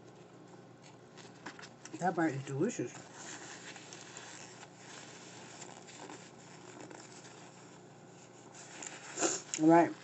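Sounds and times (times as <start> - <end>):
soft chewing: 0.0 - 2.0
paper napkin rustling: 0.9 - 10.0.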